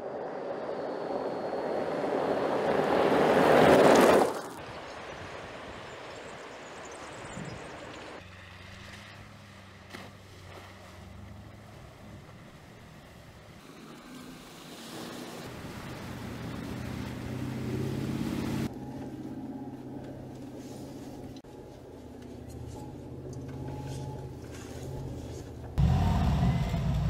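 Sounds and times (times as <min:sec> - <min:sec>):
vehicle passing on gravel: 0:00.0 - 0:19.2
engine running at low speed: 0:04.8 - 0:27.0.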